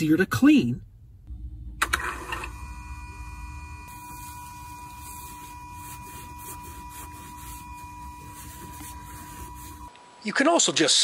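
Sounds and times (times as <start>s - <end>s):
throttle motor electric whine: 1.3s - 10.0s
rag rubbing: 3.9s - 9.9s.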